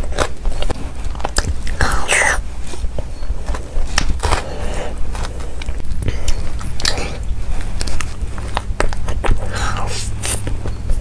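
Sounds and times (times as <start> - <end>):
person chewing: 0.0 - 11.0
biting into cake: 3.6 - 11.0.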